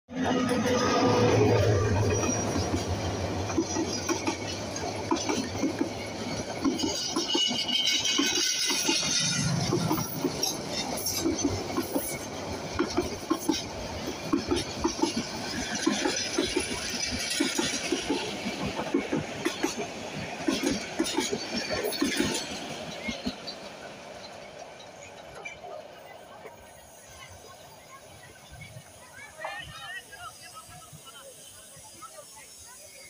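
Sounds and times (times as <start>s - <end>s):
train rumble: 0.1s - 33.0s
train wheels clicking over rail joints: 0.4s - 29.1s
high hiss: 27.0s - 33.0s.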